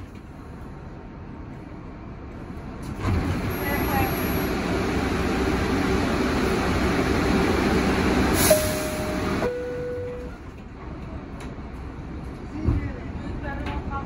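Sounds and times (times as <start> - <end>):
subway car rumble: 0.0 - 14.0
two-tone door chime: 8.5 - 10.4.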